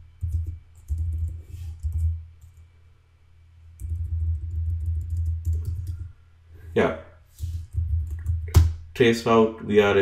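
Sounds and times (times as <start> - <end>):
keyboard typing: 0.2 - 2.7, 3.8 - 6.1, 7.5 - 8.7.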